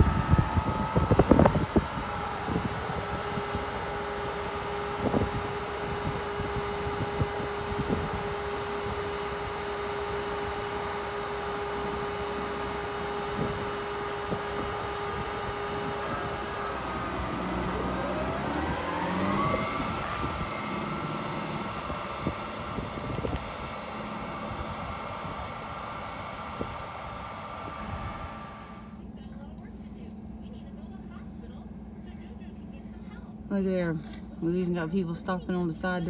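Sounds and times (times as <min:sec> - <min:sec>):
wind noise on microphone: 0:00.0 - 0:09.6, 0:13.0 - 0:28.5
tractor diesel engine revving: 0:00.0 - 0:28.9.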